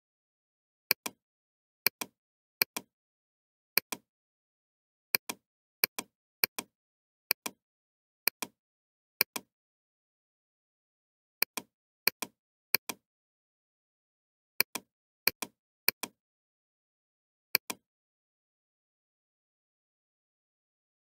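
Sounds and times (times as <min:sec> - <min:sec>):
computer mouse button clicking: 0:09.3 - 0:09.5, 0:14.6 - 0:16.2.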